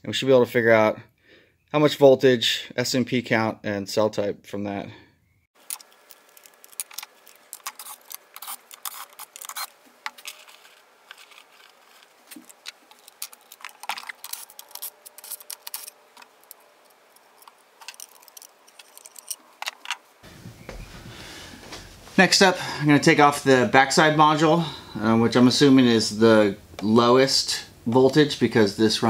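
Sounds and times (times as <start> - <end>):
small plastic parts clicking: 5.6 - 20.0.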